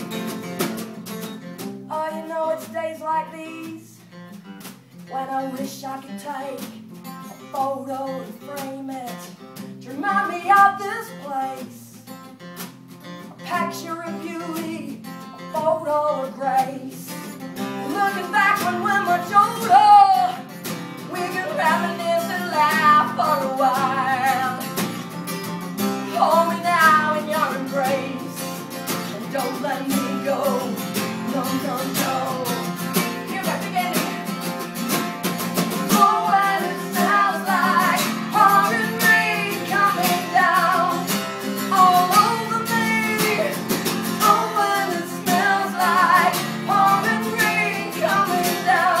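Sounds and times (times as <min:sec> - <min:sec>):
strummed acoustic guitar: 0:00.0 - 0:49.0
woman singing: 0:01.9 - 0:04.2, 0:05.1 - 0:12.1, 0:13.2 - 0:24.9, 0:26.0 - 0:34.4, 0:35.7 - 0:49.0.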